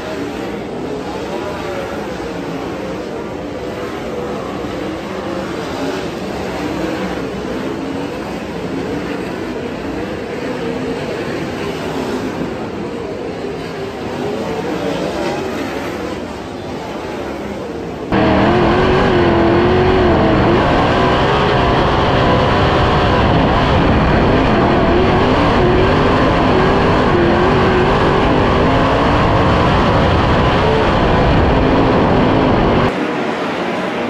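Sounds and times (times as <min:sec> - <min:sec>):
race car engine at speed: 0:00.0 - 0:34.0.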